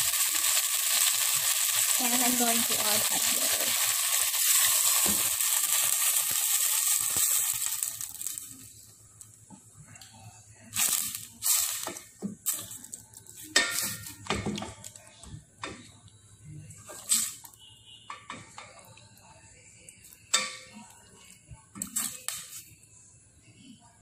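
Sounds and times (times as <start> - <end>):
hot water pouring into pot: 0.0 - 8.7, 10.8 - 12.8.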